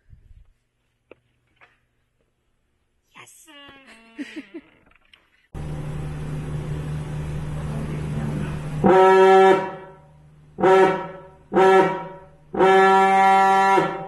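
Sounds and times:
fog horn blasts: 6.5 - 14.0.

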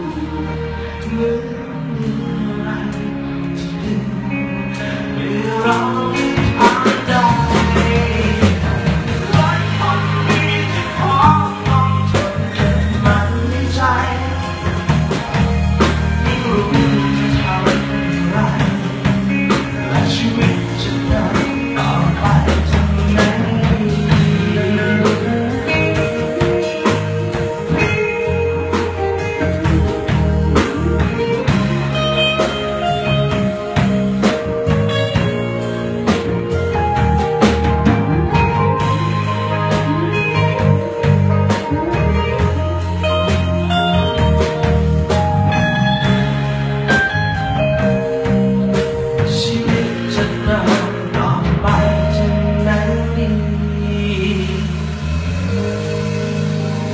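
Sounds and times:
man singing: 0.0 - 15.5, 16.2 - 35.3, 47.8 - 55.2
live band with electric guitars: 0.0 - 56.9.

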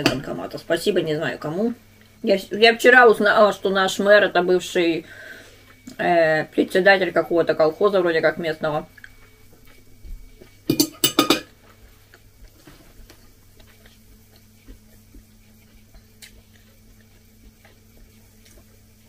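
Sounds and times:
person chewing food: 8.9 - 10.6, 11.5 - 19.0.

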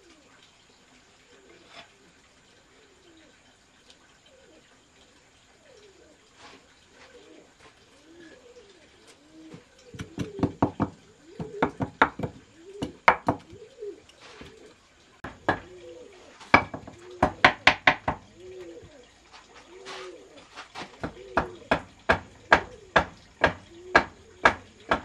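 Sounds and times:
bird calling: 4.2 - 25.0.

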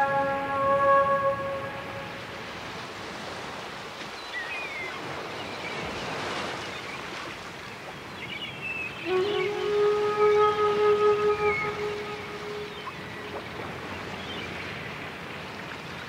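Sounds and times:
sustained music tones: 0.0 - 2.2, 9.0 - 14.1
ocean waves: 0.0 - 16.0
faint high wavering calls: 8.8 - 14.6.

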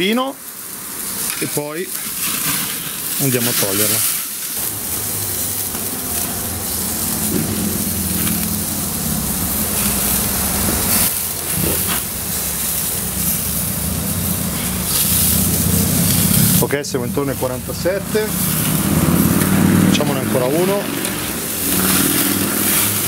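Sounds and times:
gas grill hissing: 0.0 - 23.0
low hum: 4.6 - 20.3.

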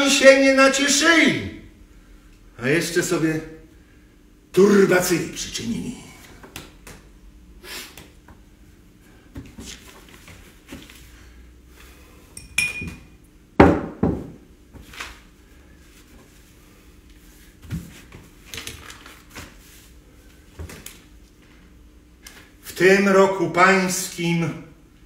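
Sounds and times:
glass ringing clink: 12.4 - 13.1
tableware clinking and knocking: 12.4 - 14.4.

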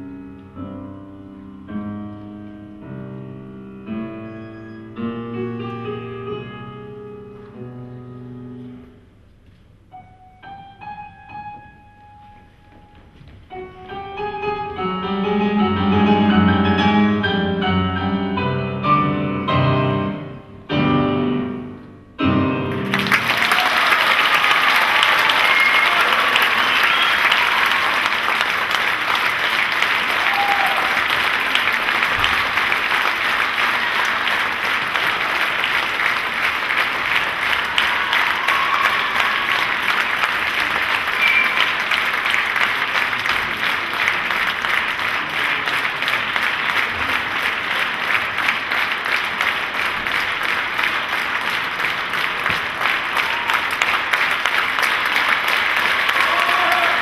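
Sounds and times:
audience clapping: 22.7 - 57.0.

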